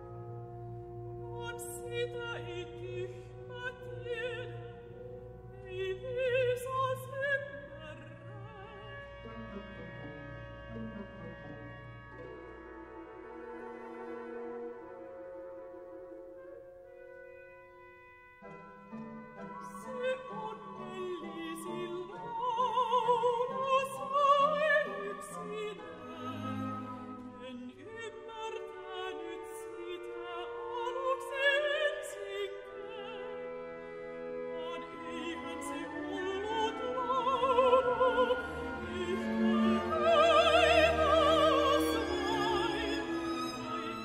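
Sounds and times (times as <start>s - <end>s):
orchestra playing: 0.0s - 44.0s
woman singing opera: 0.9s - 11.8s, 19.2s - 33.7s, 34.3s - 44.0s.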